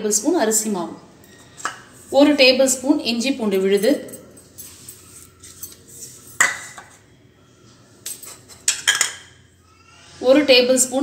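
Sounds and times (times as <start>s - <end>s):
ceramic bowl clinking against glass: 3.8s - 7.0s.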